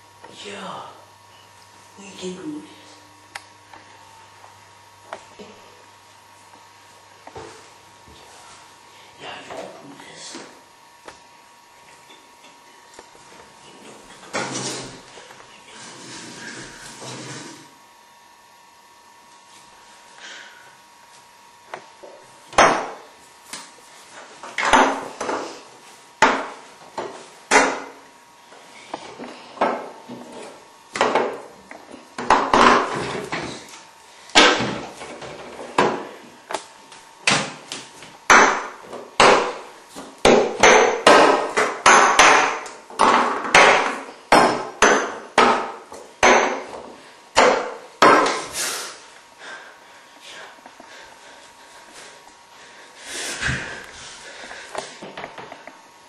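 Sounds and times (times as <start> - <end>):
sharp ringing knocks and clatters: 40.6 - 46.8.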